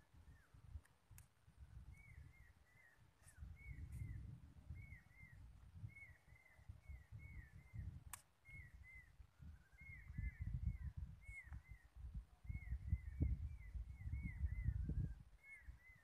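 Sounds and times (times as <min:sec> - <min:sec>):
sharp click: 0:08.1 - 0:08.3.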